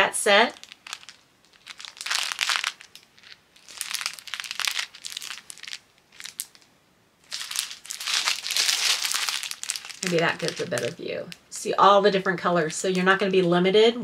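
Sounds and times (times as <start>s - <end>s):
plastic bag crinkling: 0.5s - 11.6s.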